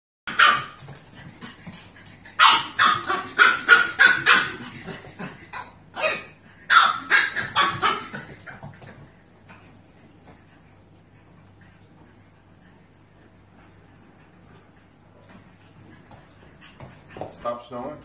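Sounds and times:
puppy yapping: 0.3 - 1.0, 2.3 - 8.7.

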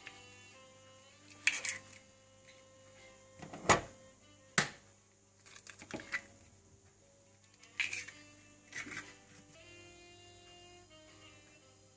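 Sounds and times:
faint background music: 0.0 - 11.9
eggshells cracking: 1.3 - 2.0, 5.4 - 6.3, 7.5 - 9.1.

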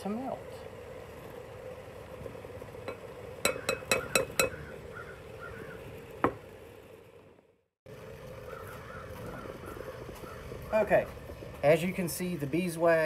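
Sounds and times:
steady low hum: 0.0 - 13.0
spatula tapping enamel bowl rim: 2.9 - 4.6.

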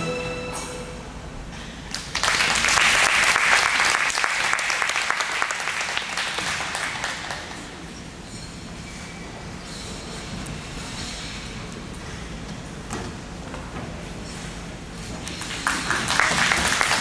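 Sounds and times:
music held note: 0.0 - 1.2
audience applauding: 1.9 - 7.8, 15.2 - 17.0.

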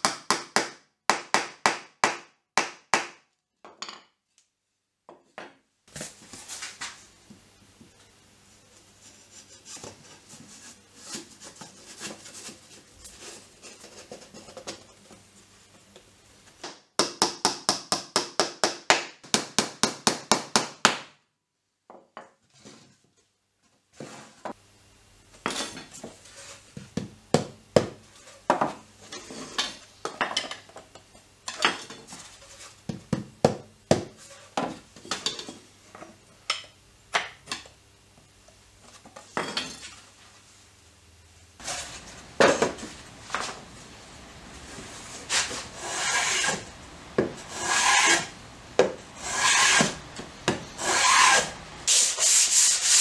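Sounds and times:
fast sharp strokes: 47.5 - 48.3, 49.2 - 50.0.

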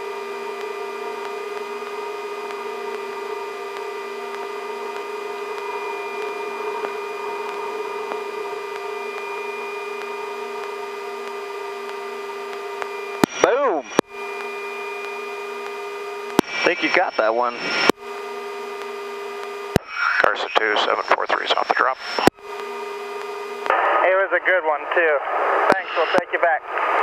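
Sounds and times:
helicopter turbine drone: 0.0 - 27.0.

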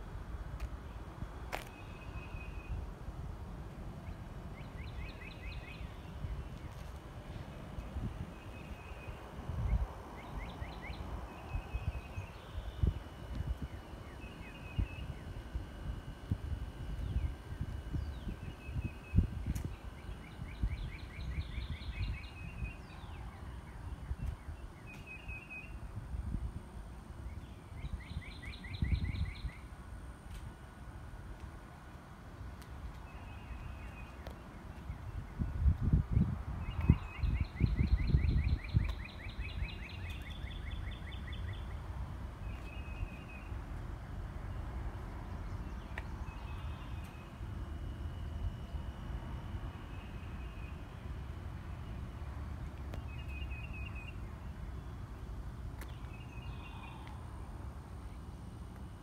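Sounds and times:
low steady rumble: 0.0 - 59.0
songbirds trilling chirps: 0.8 - 3.0, 4.0 - 30.8, 32.6 - 59.0
bird chirping: 4.0 - 6.9, 17.0 - 25.9, 27.2 - 29.7, 36.6 - 41.8, 42.4 - 43.6, 44.5 - 48.8, 52.9 - 55.0.

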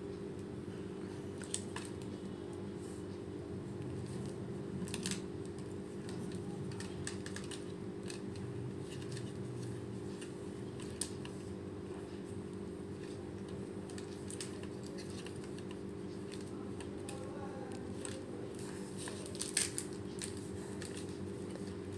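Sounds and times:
steady low hum: 0.0 - 21.9
plastic toy clicks and rustles: 4.9 - 9.3.

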